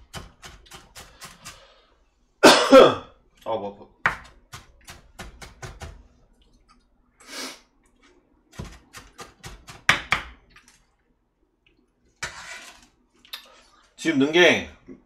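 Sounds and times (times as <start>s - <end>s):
knife chopping on cutting board: 8.6s - 10.4s.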